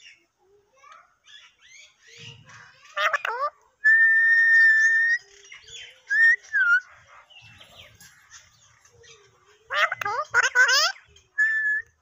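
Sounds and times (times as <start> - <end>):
parakeet squawks: 1.2 - 3.6, 6.1 - 12.0
parakeet whistling: 10.3 - 11.9.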